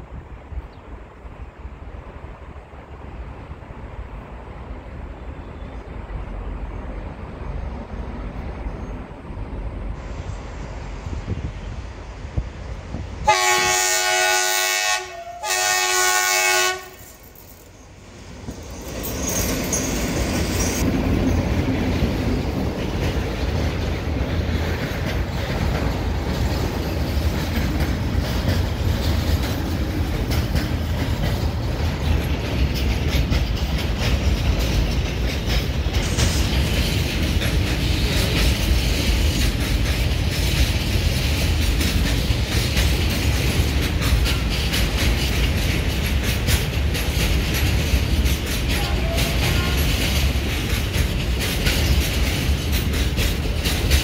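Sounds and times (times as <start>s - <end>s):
steel wheels rumbling on rails: 0.0s - 54.0s
wheel clicks over rail joints: 24.5s - 54.0s.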